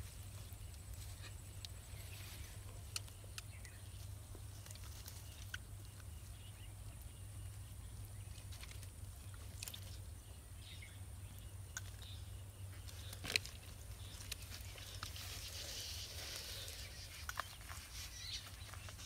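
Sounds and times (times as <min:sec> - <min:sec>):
clicks and rustles of net: 0:12.8 - 0:16.5.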